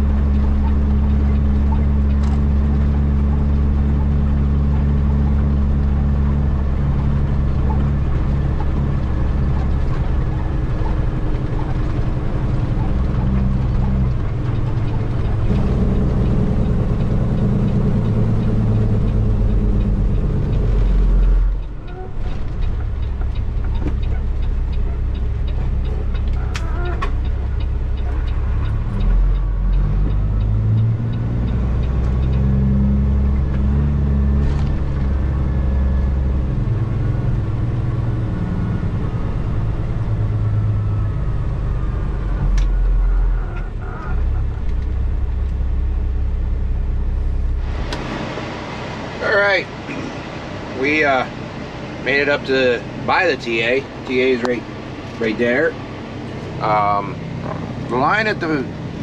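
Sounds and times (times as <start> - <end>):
diesel truck engine under load: 0.0 - 59.0.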